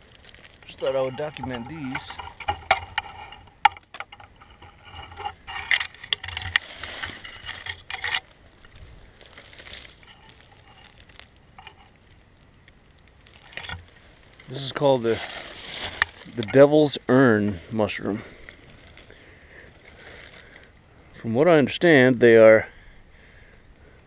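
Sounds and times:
footsteps in dry leaves: 0:00.0 - 0:03.1, 0:06.4 - 0:20.8
twigs cracking: 0:00.0 - 0:21.2.

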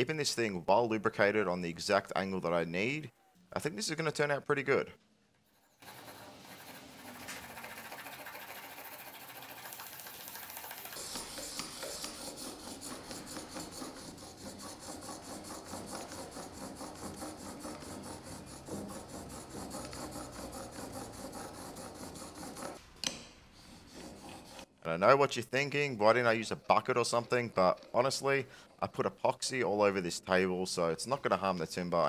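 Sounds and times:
blade scraping on whetstone: 0:11.0 - 0:22.8, 0:23.6 - 0:24.7.

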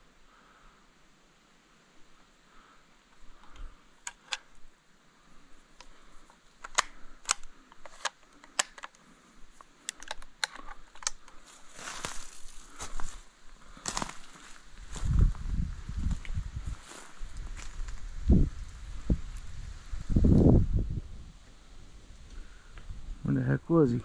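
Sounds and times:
branches rustling: 0:01.7 - 0:23.2
twigs snapping: 0:05.8 - 0:15.2
footsteps on dry forest floor: 0:10.6 - 0:19.6.

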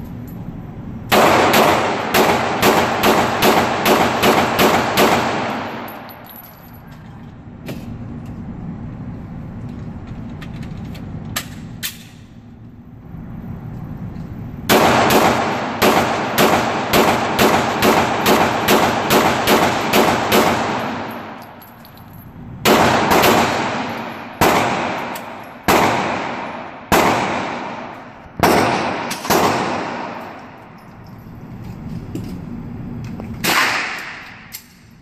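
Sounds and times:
pistol shots: 0:01.1 - 0:06.1, 0:14.7 - 0:21.4, 0:22.6 - 0:30.6, 0:33.4 - 0:34.7
gunshot echo indoors: 0:01.1 - 0:06.2, 0:14.7 - 0:21.4, 0:22.6 - 0:30.6, 0:33.4 - 0:34.5.

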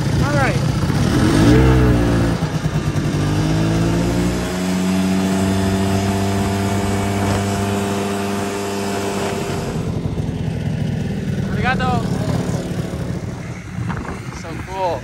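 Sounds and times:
snowmobile engine running: 0:00.0 - 0:15.0
wind noise on microphone: 0:04.9 - 0:10.2, 0:12.4 - 0:15.0.

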